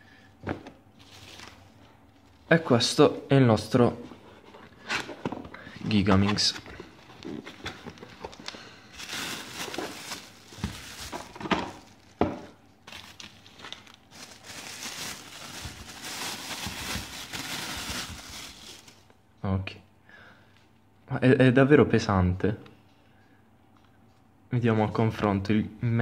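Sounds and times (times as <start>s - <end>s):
plastic bag crinkling: 1.0s - 2.5s, 6.3s - 19.1s.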